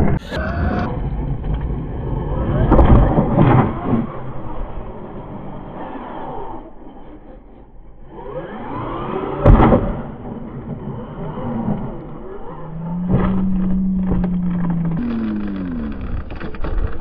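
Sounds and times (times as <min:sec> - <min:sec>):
toy truck crashing: 0:08.5 - 0:17.0
electric motor whining: 0:11.1 - 0:16.7.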